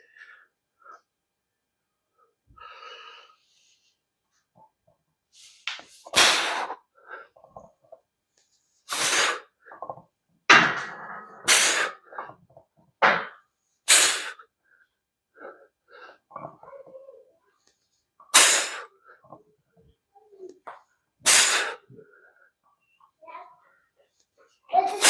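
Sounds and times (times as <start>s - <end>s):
man exhaling forcefully: 6.2s - 6.8s, 11.5s - 12.0s, 13.9s - 14.4s, 21.3s - 21.8s.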